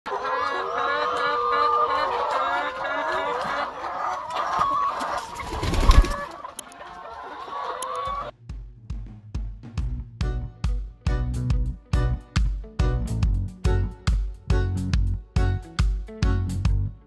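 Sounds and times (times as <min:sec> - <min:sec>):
hens clucking: 0:00.1 - 0:08.3.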